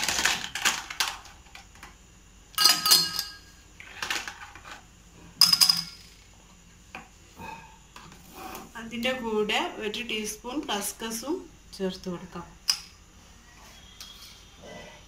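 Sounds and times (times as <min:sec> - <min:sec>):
ice cubes clinking in glasses: 0:02.6 - 0:03.4.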